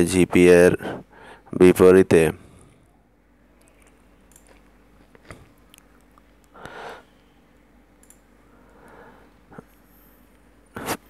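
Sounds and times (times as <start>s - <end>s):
person sniffing: 6.6s - 7.1s, 10.8s - 11.0s
soft breath: 6.6s - 7.4s, 8.4s - 10.3s.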